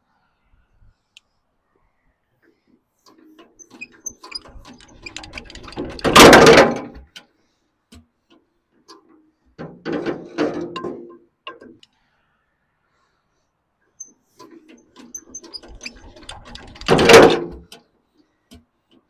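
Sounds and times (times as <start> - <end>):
diesel engine being hand-cranked: 3.2 - 7.2, 14.3 - 17.8.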